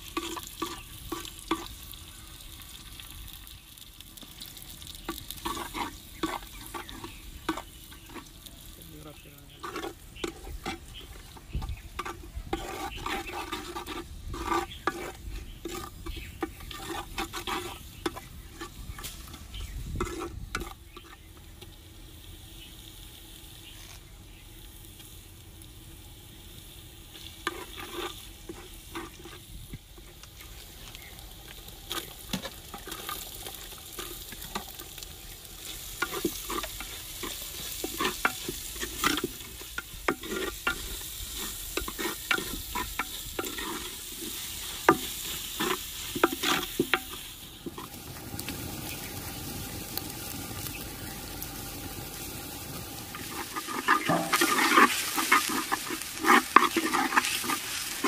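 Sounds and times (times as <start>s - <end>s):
food sizzling: 0.0s - 58.0s
ladle scraping clay pot: 5.0s - 8.6s, 9.5s - 21.3s, 27.4s - 30.2s, 35.6s - 48.0s, 53.1s - 58.0s.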